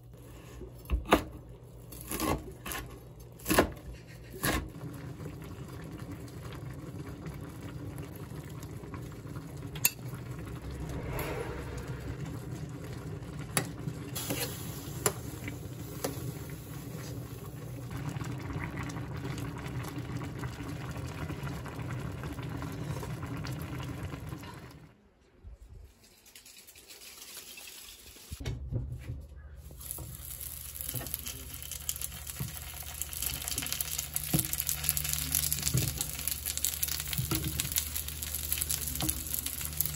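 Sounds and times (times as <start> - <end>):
stew boiling in a pot: 0.0 - 10.9, 12.0 - 24.9, 29.6 - 39.9
rice cake sizzling in oil: 13.5 - 23.0, 29.7 - 39.9.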